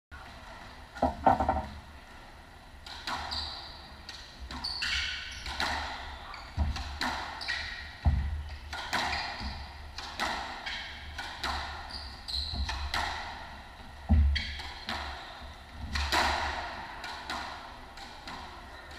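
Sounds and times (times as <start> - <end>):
shoes squeaking on hardwood floor: 11.9 - 12.8.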